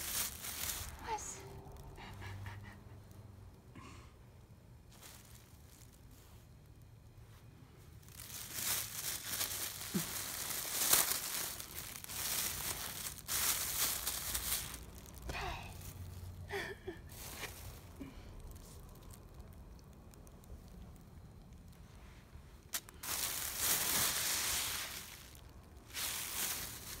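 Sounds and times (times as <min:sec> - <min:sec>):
plastic bag crinkling: 0:00.0 - 0:01.2, 0:04.8 - 0:06.6, 0:07.9 - 0:16.4, 0:17.0 - 0:21.8, 0:22.6 - 0:27.0.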